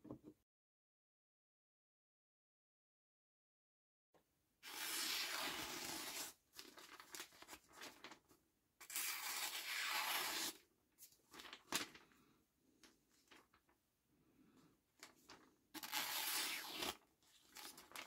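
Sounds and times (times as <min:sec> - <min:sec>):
knife slicing paper: 0:04.6 - 0:06.4, 0:08.8 - 0:10.6, 0:15.8 - 0:18.0
paper rustling: 0:06.5 - 0:08.4, 0:11.0 - 0:12.2, 0:12.9 - 0:13.8, 0:15.0 - 0:18.0.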